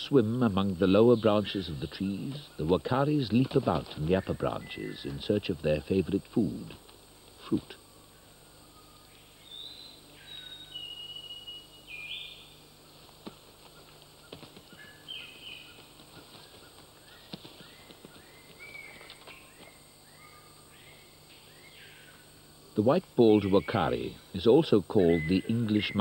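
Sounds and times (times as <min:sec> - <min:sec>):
high whistled bird calls: 0:08.8 - 0:12.5, 0:25.0 - 0:26.0.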